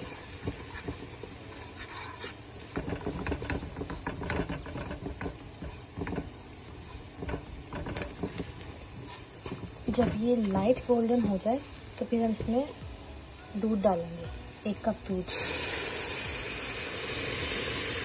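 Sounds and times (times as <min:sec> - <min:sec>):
utensil scraping and tapping a pan: 0:00.0 - 0:12.7
faint sizzle: 0:00.0 - 0:18.0.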